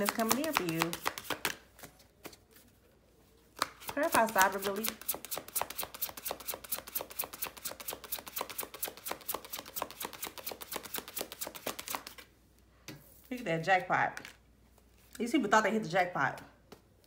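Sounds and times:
cards being shuffled: 0.0 - 2.8, 3.5 - 12.3.

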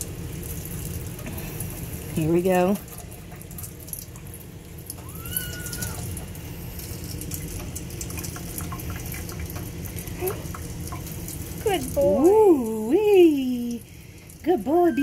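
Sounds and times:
faucet water splashing into sink: 0.0 - 15.0
kitten mew: 5.0 - 6.0.

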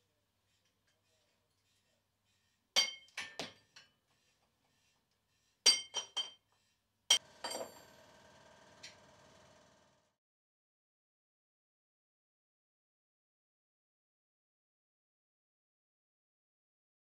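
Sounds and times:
faint steady ringing: 7.1 - 9.6.

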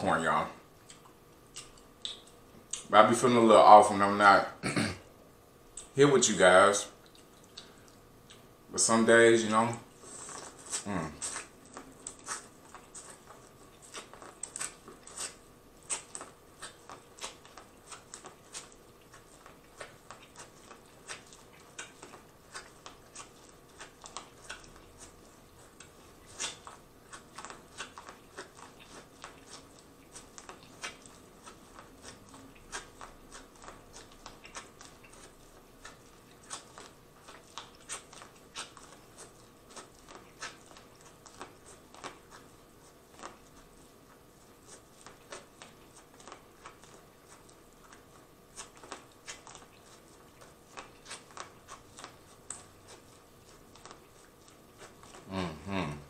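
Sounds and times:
wet chewing: 0.8 - 2.9, 6.9 - 8.6, 9.7 - 56.0
crunching corn on the cob: 10.2 - 43.9.

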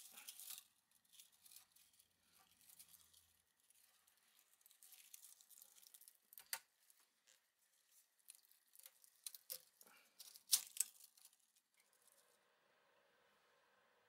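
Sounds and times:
loose wire rustling: 0.0 - 12.3
sharp clicks and snaps: 5.8 - 6.7.

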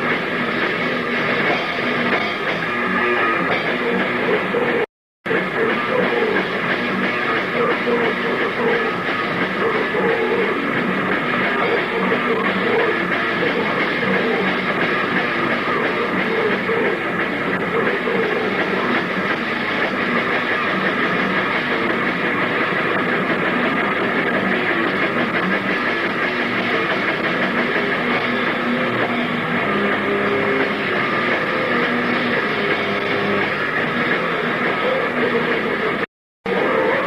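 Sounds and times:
live rock band playing: 0.0 - 37.0.

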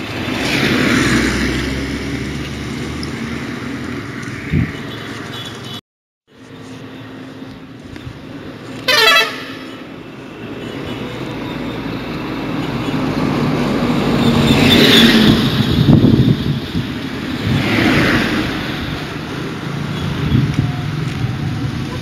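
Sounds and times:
short horn toot: 8.9 - 9.8.

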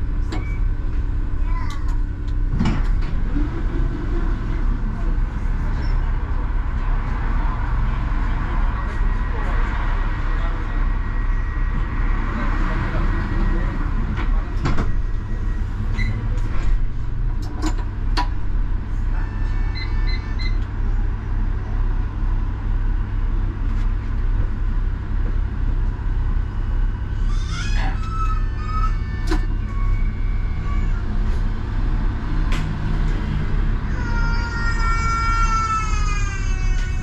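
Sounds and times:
tram running rumble: 0.0 - 37.0
brief squeal: 15.4 - 16.2.

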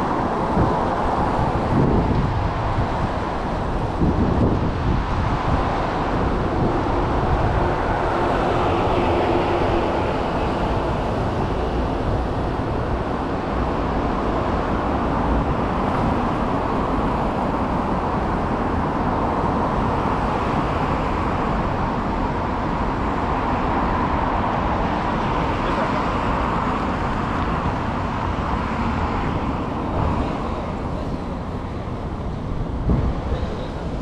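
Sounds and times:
traffic passing on city road: 0.0 - 34.0.

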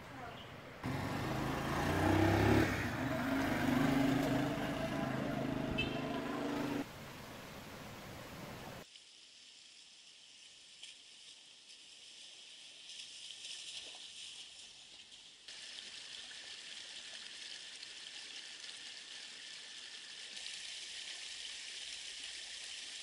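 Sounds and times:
creek water rushing over stones: 15.5 - 23.0.

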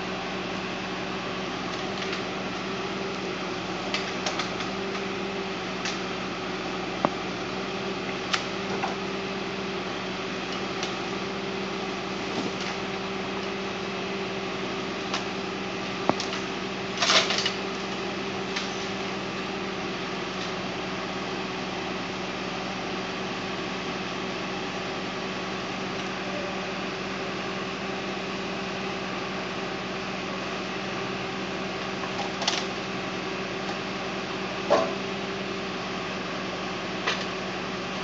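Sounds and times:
tractor diesel engine running: 0.0 - 38.0.

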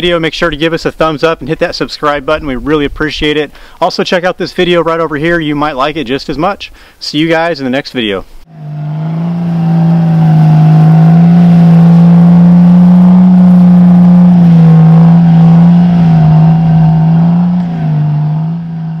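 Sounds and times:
car engine revving high: 8.5 - 19.0.

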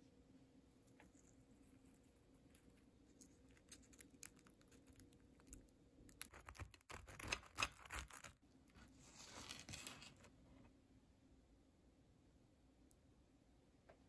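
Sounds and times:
soft crackle of pressed sandwich: 0.7 - 10.8
knife sawing crusty bread: 6.3 - 8.4.

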